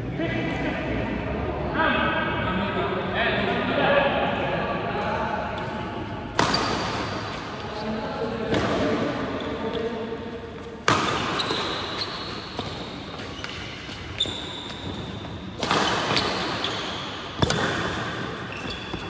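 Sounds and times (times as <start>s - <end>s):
rackets hitting shuttlecock: 5.6s - 7.4s, 10.8s - 19.0s
shoes squeaking on court floor: 6.4s - 19.0s.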